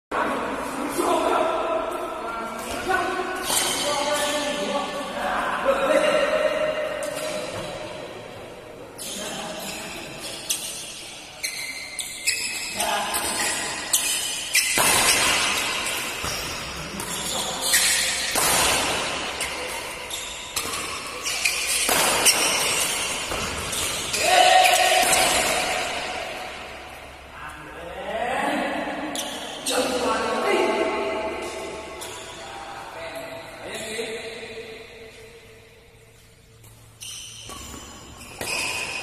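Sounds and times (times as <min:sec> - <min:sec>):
voices in a large hall: 0:00.1 - 0:37.0
badminton rackets hitting shuttlecock: 0:02.6 - 0:04.6, 0:12.2 - 0:27.2, 0:36.6 - 0:39.0.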